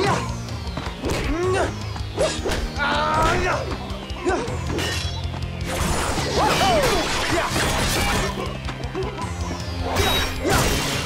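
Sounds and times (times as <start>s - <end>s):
action music: 0.0s - 11.0s.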